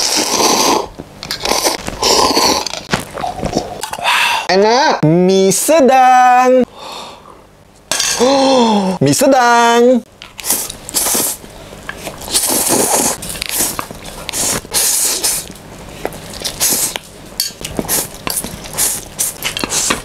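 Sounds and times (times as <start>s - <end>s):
noodle slurping: 0.0s - 2.9s, 10.4s - 15.5s, 17.7s - 20.0s.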